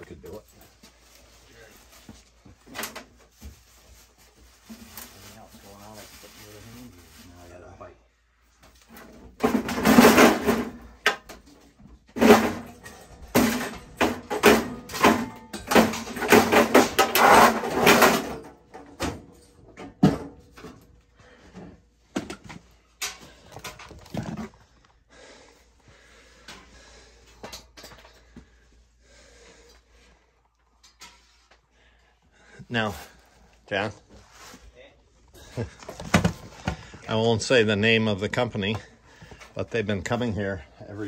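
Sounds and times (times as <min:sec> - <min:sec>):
metal knocks and clanks: 0:12.1 - 0:20.9
sheet metal scraping and rattling: 0:12.2 - 0:20.8.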